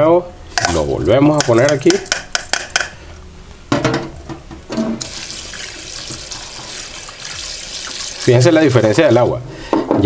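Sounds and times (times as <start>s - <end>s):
tap water splashing into bowl: 5.0s - 8.3s.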